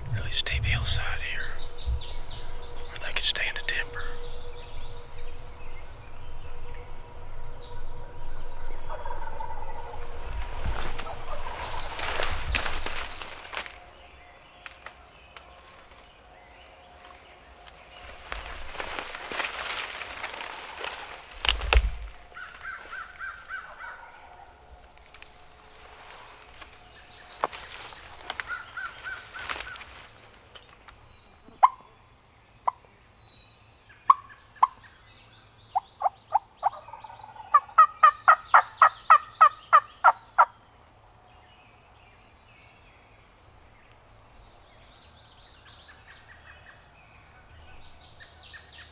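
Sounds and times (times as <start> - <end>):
brush rustling: 0.0 - 31.1.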